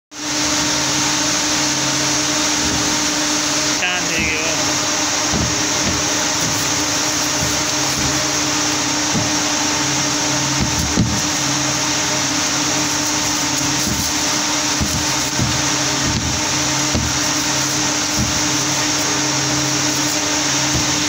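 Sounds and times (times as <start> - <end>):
textile machinery drone: 0.2 - 21.0
strong hiss: 1.8 - 21.0.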